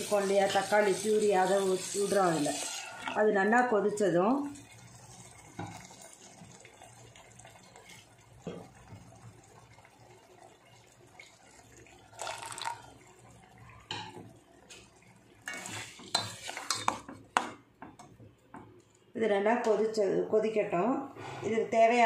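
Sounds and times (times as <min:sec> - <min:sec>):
puree cooking in a pot: 0:00.0 - 0:20.3
spoon scraping steel pot: 0:15.5 - 0:17.0.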